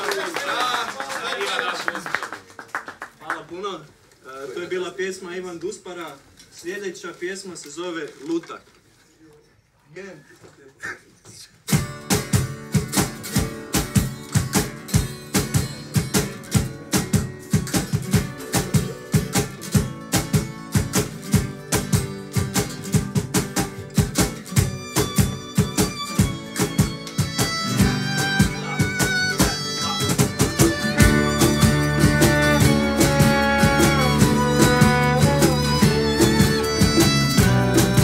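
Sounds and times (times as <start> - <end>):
acoustic guitars strumming: 11.7 - 38.0
hand drums: 11.7 - 38.0
violins: 24.5 - 38.0.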